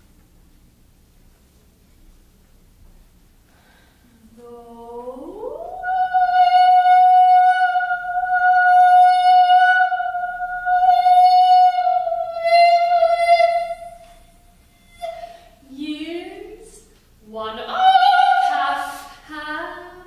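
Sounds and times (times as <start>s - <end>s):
soprano singing: 4.2s - 20.0s.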